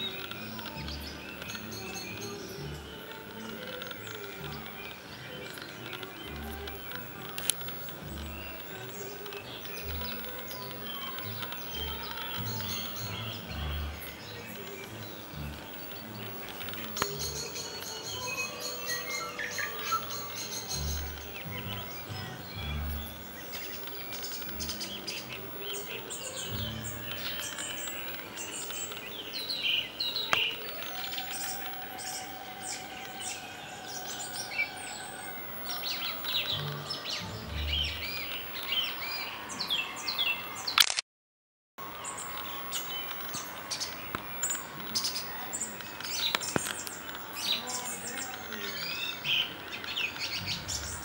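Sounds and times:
faint operatic singing: 0:00.0 - 0:40.8, 0:41.8 - 0:51.0
songbirds chirping and trilling: 0:00.0 - 0:41.0, 0:41.8 - 0:51.0.

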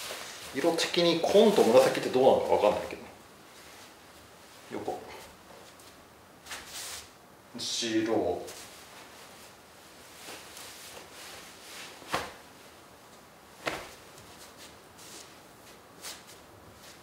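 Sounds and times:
jacket fabric swishing: 0:00.0 - 0:02.2, 0:08.4 - 0:17.0.

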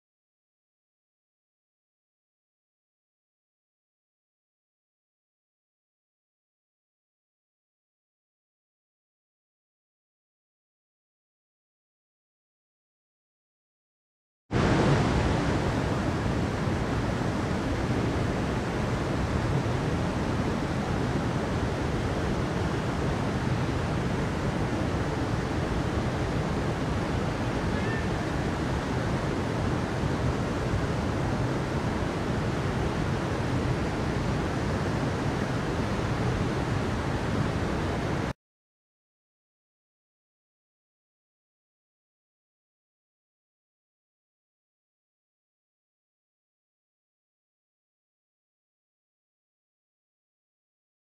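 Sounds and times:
stream rushing over rocks: 0:14.6 - 0:38.3.

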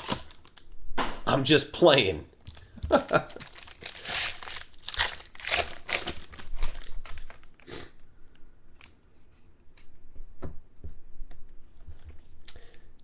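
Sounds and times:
foil wrapper tearing and crinkling: 0:00.0 - 0:00.7, 0:02.5 - 0:07.7.

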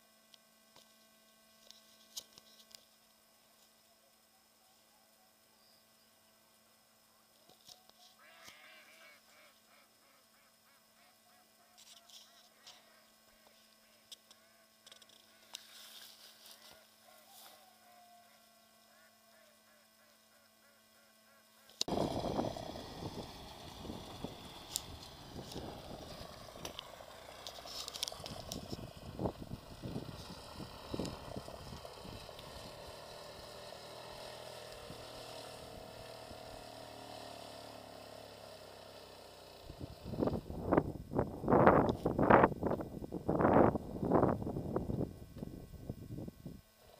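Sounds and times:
distant quad bike engine drone: 0:00.0 - 0:46.9
faint steady hum: 0:00.0 - 0:46.9
distant geese honking: 0:08.1 - 0:15.8, 0:16.4 - 0:21.9.

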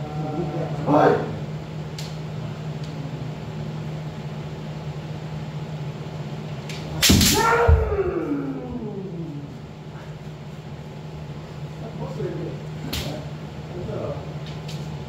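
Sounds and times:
steady low hum: 0:00.0 - 0:15.0
bamboo sword strike: 0:06.9 - 0:07.9
person shouting: 0:07.2 - 0:09.6.

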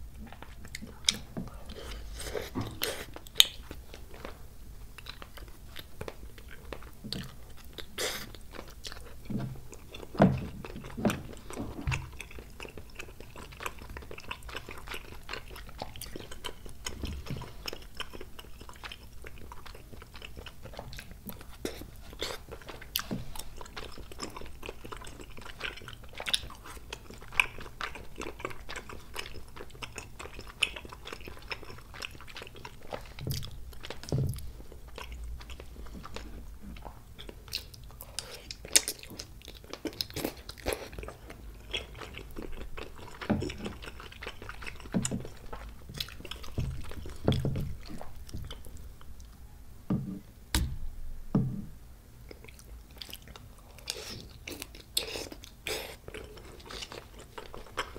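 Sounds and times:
close chewing with wet smacks: 0:00.1 - 0:49.4, 0:52.2 - 0:57.9
deep thumps: 0:49.9 - 0:51.8.

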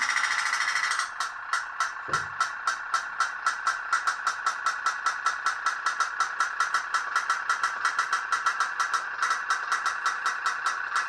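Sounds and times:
pop-pop boat popping: 0:02.0 - 0:02.6.

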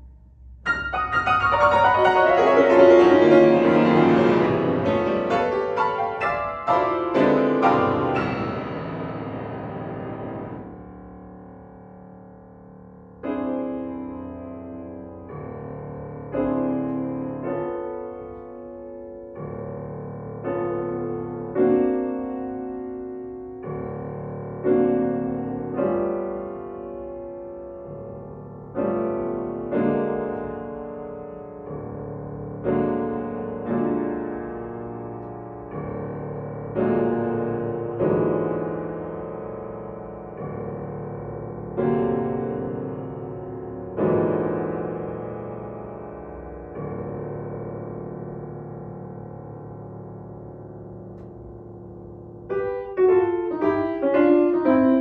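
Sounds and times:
slow piano chords: 0:00.0 - 0:55.0.

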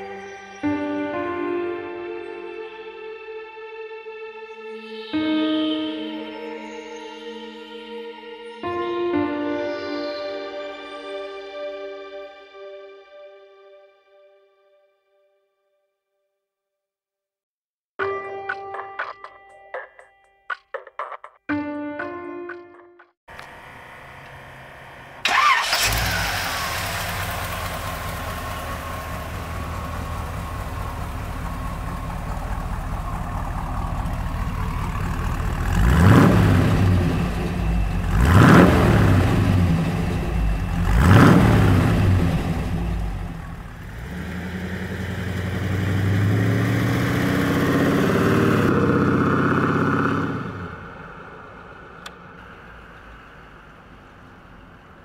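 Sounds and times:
truck engine starting and idling: 0:23.3 - 0:55.0
truck pulling away: 0:23.3 - 0:55.0
engine revving: 0:23.4 - 0:51.5.

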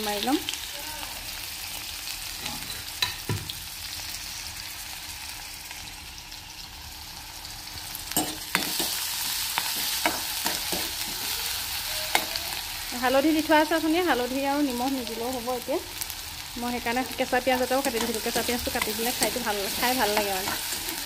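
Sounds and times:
food sizzling in hot oil: 0:00.0 - 0:21.0
metal spatula scraping pan: 0:17.8 - 0:21.0.

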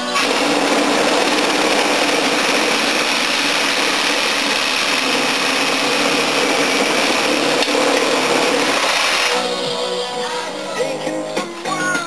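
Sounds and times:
power saw cutting metal fins: 0:00.0 - 0:09.5.

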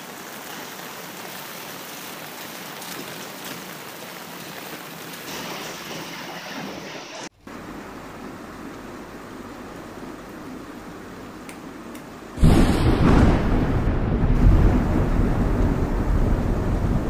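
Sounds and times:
rain falling on pavement: 0:00.0 - 0:06.1, 0:12.2 - 0:17.0.

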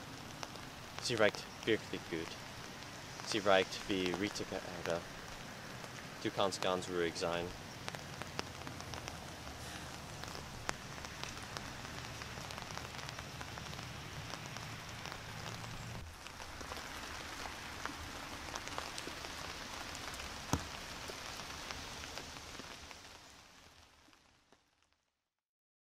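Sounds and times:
steady rain falling: 0:00.0 - 0:25.1.

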